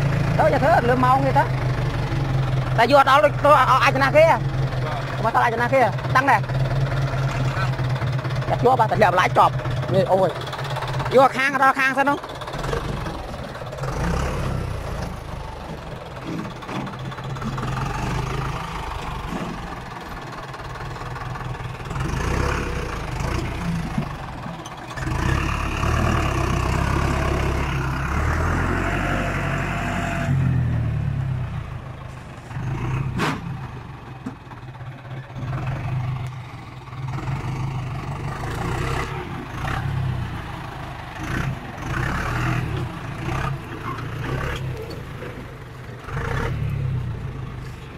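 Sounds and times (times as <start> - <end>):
tractor engine under load: 0.0 - 47.9.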